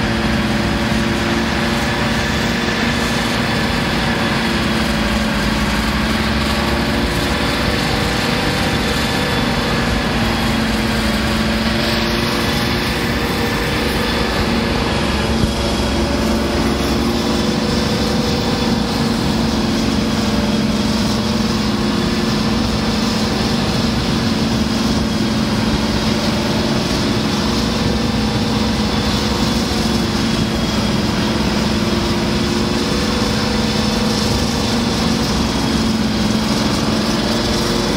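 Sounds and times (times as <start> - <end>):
diesel locomotive engine thrashing: 0.0 - 37.9.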